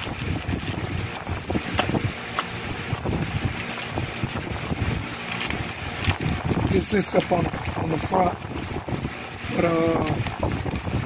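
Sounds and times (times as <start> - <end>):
plastic bags crinkling: 0.0 - 1.9, 3.5 - 8.4.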